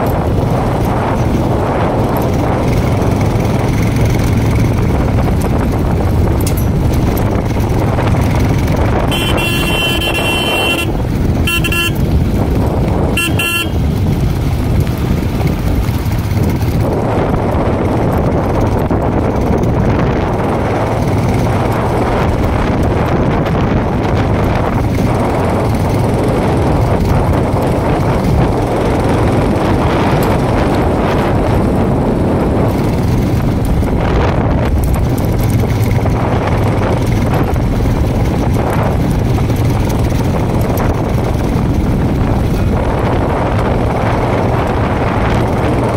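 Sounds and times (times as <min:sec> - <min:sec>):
motorcycle engine running: 0:00.0 - 0:45.9
wind on microphone: 0:00.0 - 0:45.9
motorcycle horn: 0:08.8 - 0:12.4, 0:13.0 - 0:14.0.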